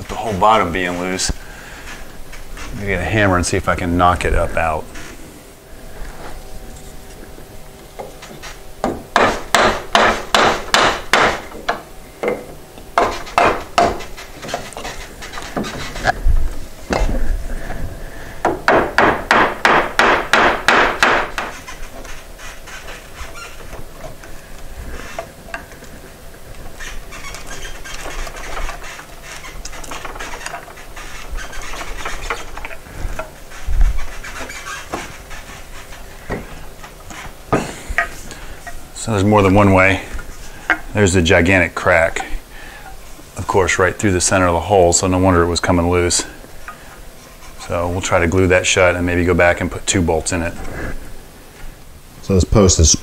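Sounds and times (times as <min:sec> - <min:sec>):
wood and metal scraping: 0:00.0 - 0:51.8
hammer knocking on wood: 0:08.8 - 0:14.1, 0:18.4 - 0:21.6.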